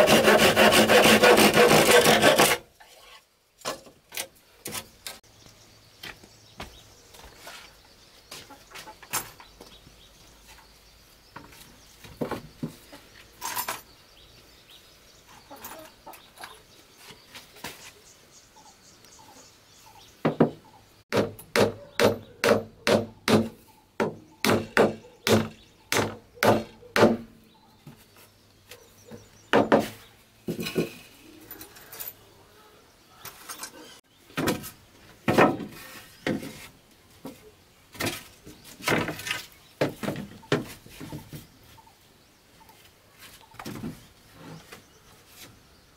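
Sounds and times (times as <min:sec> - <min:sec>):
rapid sharp blows on wood: 0:00.0 - 0:02.6, 0:21.1 - 0:27.3
wooden boards being knocked: 0:35.2 - 0:35.7.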